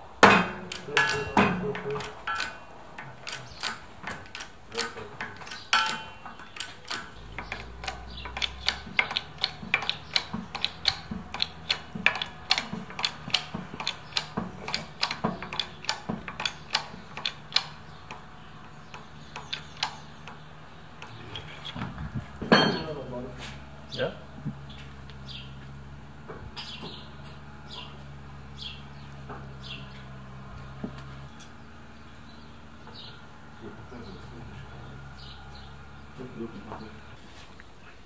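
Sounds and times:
hydraulic press pump clicking: 0.3 - 21.8.

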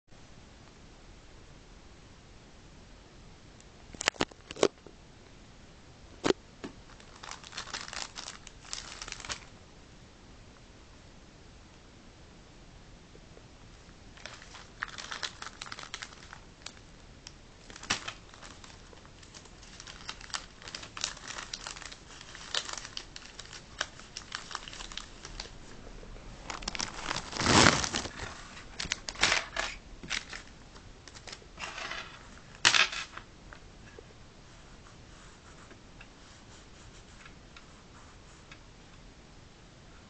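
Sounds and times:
plastic bag crinkling: 6.9 - 9.5, 14.1 - 16.8, 17.6 - 33.2.

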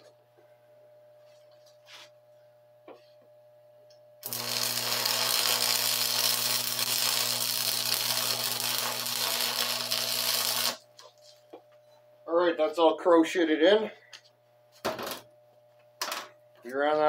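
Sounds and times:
welding arc crackling hiss: 4.2 - 10.8.

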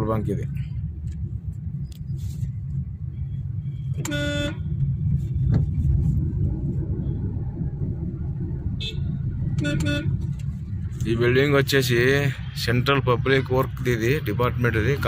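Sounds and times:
road and engine rumble: 0.0 - 15.0
vehicle horn honk: 4.0 - 4.7, 8.8 - 10.1.

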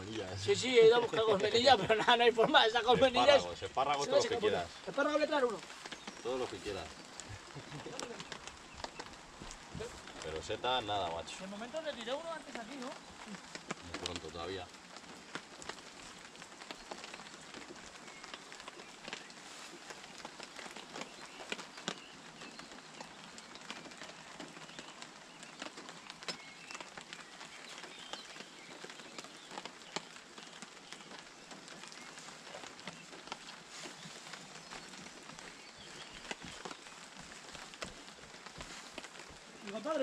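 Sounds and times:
rain drops ticking on tarp: 0.0 - 40.0
soft rain hiss: 0.0 - 40.0.

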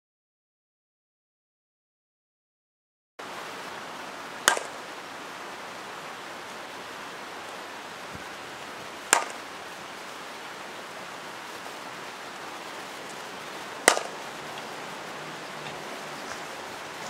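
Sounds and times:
steady hiss: 3.2 - 17.0
bat striking softball: 4.4 - 4.8, 9.1 - 9.5, 13.8 - 14.8.

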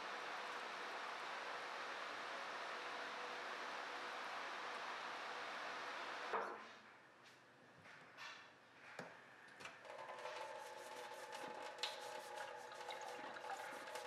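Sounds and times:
tap water splashing into sink: 11.6 - 14.0.

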